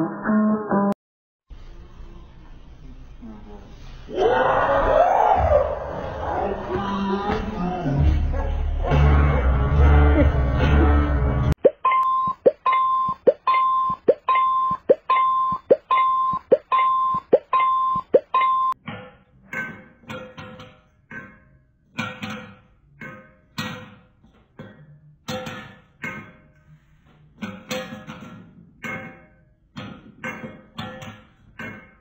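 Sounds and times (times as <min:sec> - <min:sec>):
electronic swooping beep: 0:11.6 - 0:18.8.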